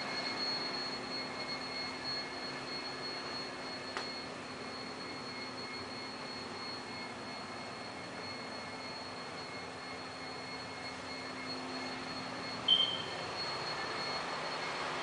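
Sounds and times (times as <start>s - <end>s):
thin high whine: 0.0s - 15.0s.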